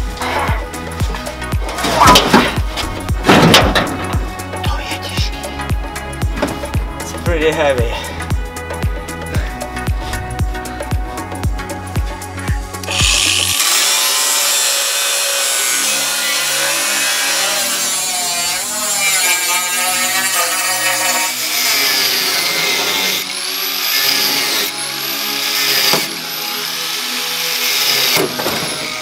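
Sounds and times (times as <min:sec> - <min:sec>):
angle grinder cutting steel: 0:12.8 - 0:29.0.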